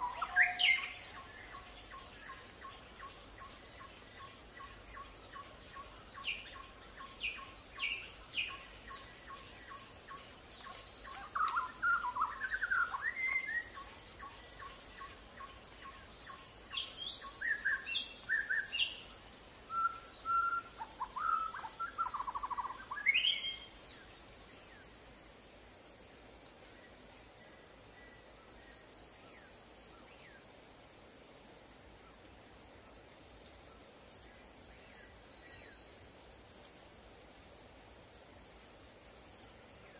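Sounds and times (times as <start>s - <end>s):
insects droning: 0.0s - 39.9s.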